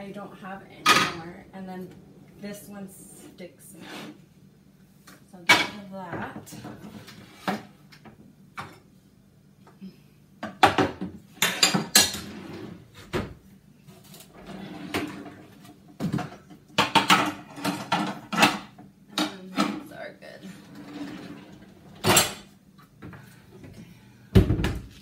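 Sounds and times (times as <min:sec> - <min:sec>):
metal pots and pans clattering: 0:10.4 - 0:12.3, 0:16.0 - 0:19.9.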